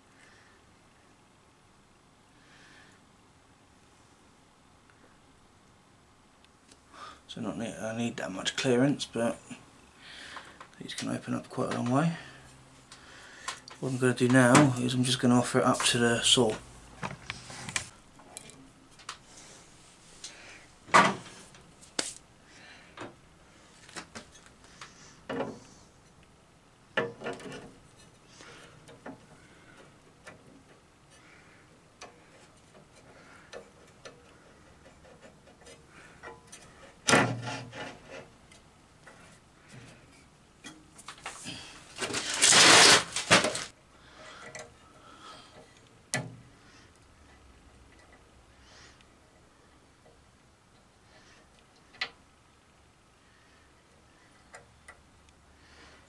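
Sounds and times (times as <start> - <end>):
metal scraping rub: 34.6 - 38.4, 41.9 - 44.4.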